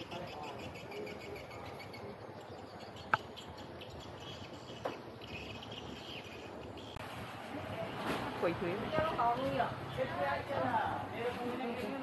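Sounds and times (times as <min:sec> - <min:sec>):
faint high chirping: 0:00.0 - 0:07.0
outdoor background noise: 0:00.0 - 0:12.0.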